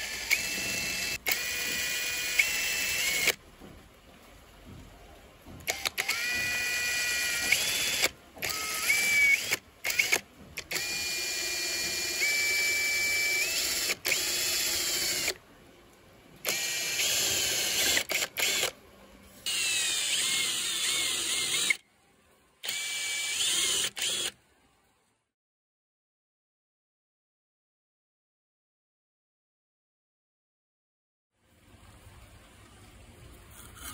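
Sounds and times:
drill bit whining: 0.0 - 3.4, 5.7 - 15.4, 16.4 - 18.7, 19.5 - 21.8, 22.6 - 24.4.

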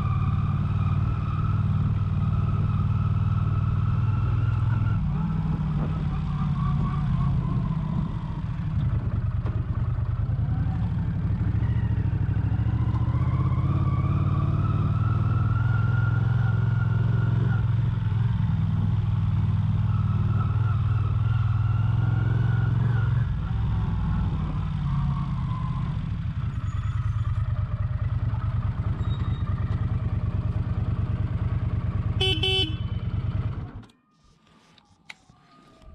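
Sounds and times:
motorcycle engine running: 26.3 - 33.8
horn toot: 32.2 - 33.2.

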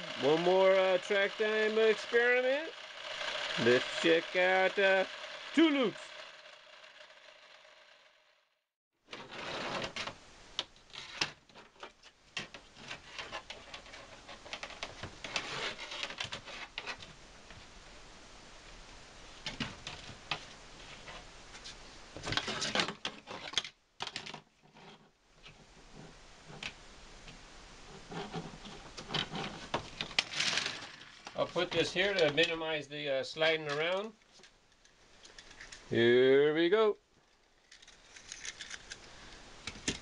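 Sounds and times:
plastic track pieces clicking: 30.0 - 31.4, 37.6 - 39.1.

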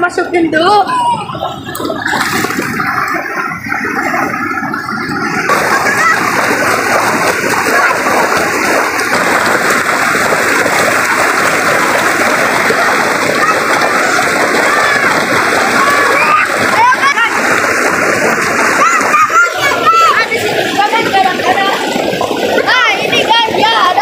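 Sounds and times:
children splashing in water: 0.6 - 24.0
river rushing over stones: 5.4 - 22.8.

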